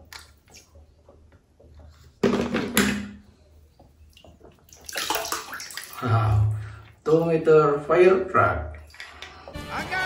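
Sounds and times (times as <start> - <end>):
water splashing and dripping: 0.0 - 1.8, 3.8 - 7.4, 8.6 - 9.6.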